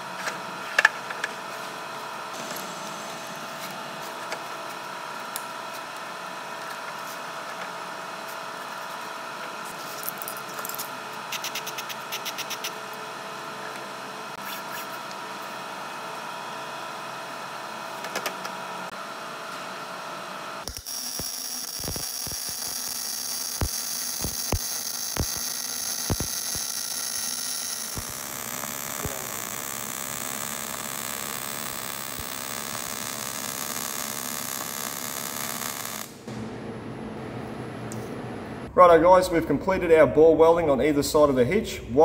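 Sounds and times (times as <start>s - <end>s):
welder machine hum: 0.0s - 38.7s
welding spatter pops: 20.6s - 36.2s
welding arc crackling hiss: 20.6s - 36.3s.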